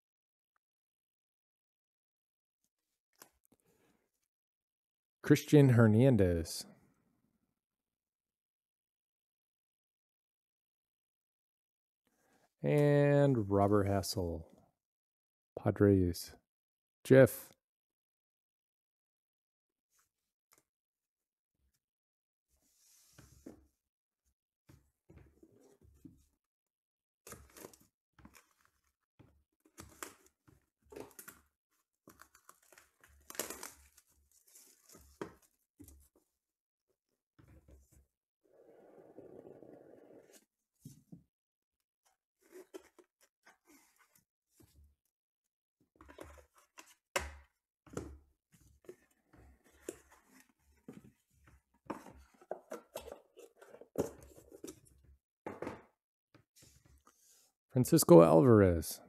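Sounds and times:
plastic wrap tearing and crinkling: 32.3 - 34.0.

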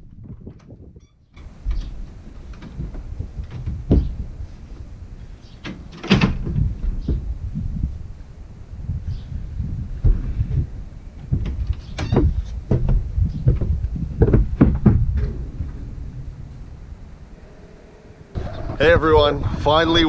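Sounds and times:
door swinging open and shut: 5.4 - 7.3, 11.2 - 18.9
footsteps on wooden deck: 10.0 - 15.8
sharp bang: 14.6 - 18.8.

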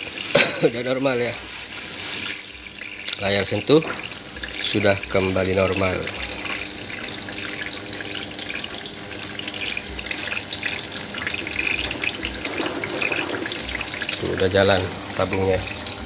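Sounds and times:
washing machine water splashing: 0.0 - 16.0.

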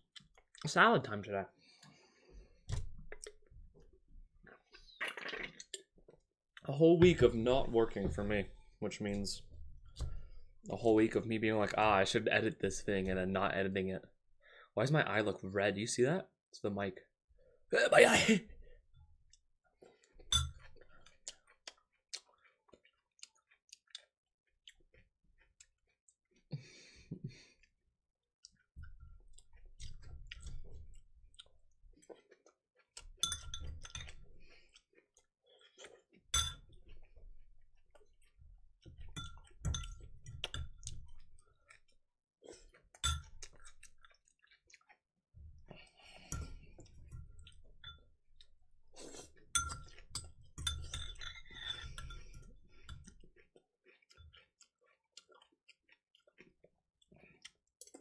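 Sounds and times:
person chewing: 1.6 - 6.2, 19.3 - 27.8, 28.4 - 33.2, 33.8 - 58.0
utensil clinking against dish: 33.2 - 34.2, 36.4 - 36.7, 43.0 - 43.4, 49.6 - 53.0.

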